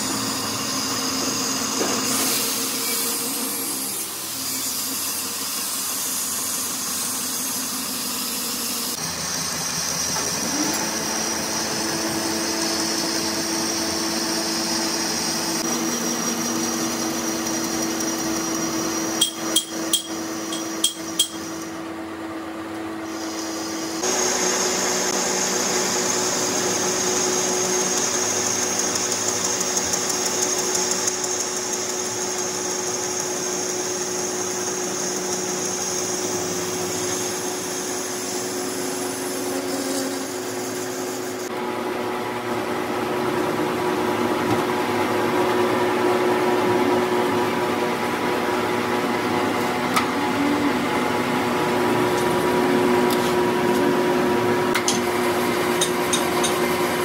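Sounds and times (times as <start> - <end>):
metal lathe hum: 8.9 - 22.2.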